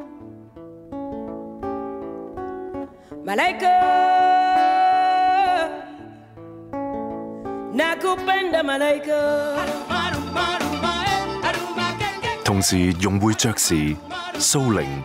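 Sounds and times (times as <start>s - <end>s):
acoustic guitar picking: 0.0s - 15.0s
woman singing: 3.2s - 6.2s, 7.7s - 12.4s.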